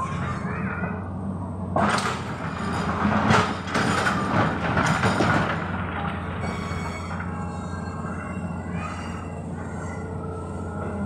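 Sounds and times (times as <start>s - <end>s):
diesel engine running: 0.0s - 11.0s
rocks and gravel clattering into truck: 1.8s - 6.3s.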